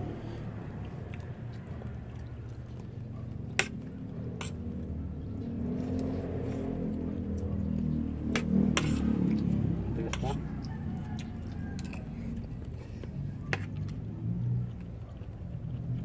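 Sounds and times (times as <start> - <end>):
low steady rumble: 0.0 - 16.0.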